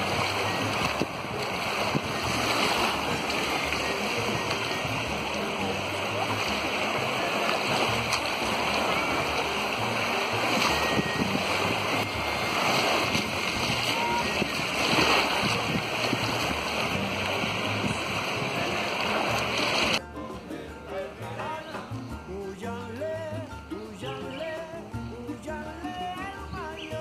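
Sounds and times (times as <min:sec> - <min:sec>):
small waves washing onto sand: 0:00.0 - 0:20.0
indistinct voices: 0:00.0 - 0:27.0.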